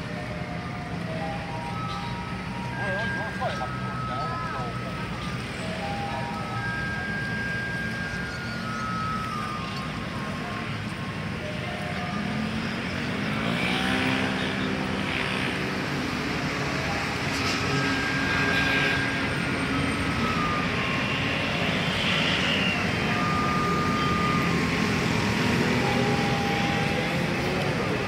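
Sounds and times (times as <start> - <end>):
rumble of vehicles: 0.0 - 28.0
faint tune of held notes: 0.9 - 12.7, 16.8 - 28.0.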